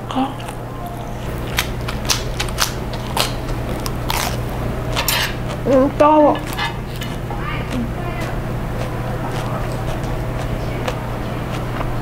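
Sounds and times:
steady low hum: 0.0 - 12.0
chewing clicks and crackles: 0.4 - 12.0.

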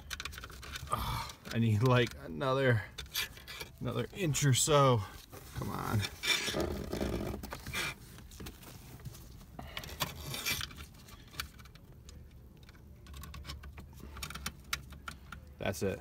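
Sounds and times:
clicks scrapes and rustles: 0.0 - 2.2, 5.1 - 15.5.

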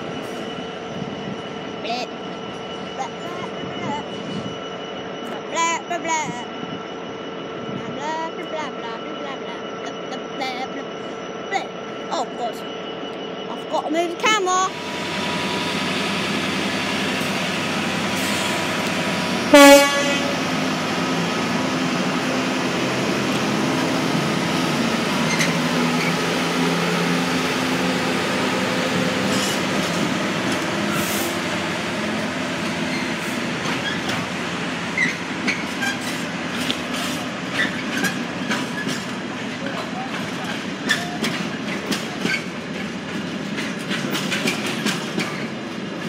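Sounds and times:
freight train rumbling past: 0.0 - 46.0
train horn blast: 19.5 - 20.5
train wheels clicking on rail joints: 27.8 - 46.0.

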